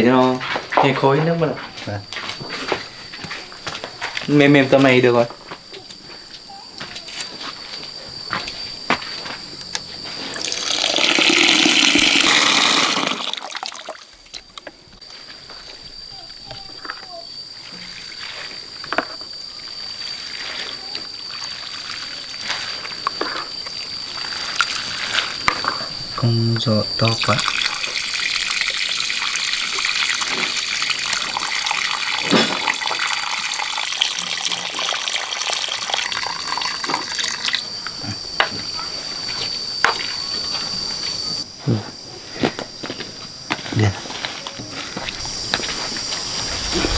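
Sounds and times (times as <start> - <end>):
tap water pouring into basin: 10.2 - 14.4, 27.0 - 37.6.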